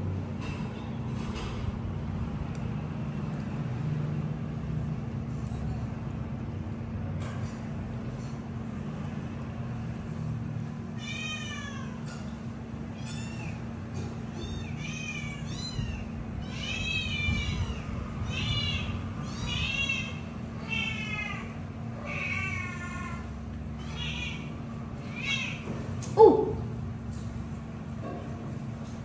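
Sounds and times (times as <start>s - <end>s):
kitten meowing: 14.3s - 23.2s.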